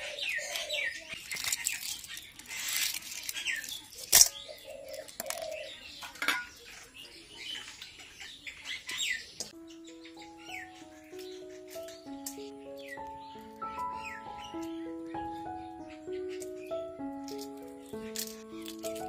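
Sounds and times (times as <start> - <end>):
small birds chirping: 0.0 - 19.0
egg shells crackling: 1.2 - 5.6, 16.1 - 19.0
music: 9.5 - 19.0.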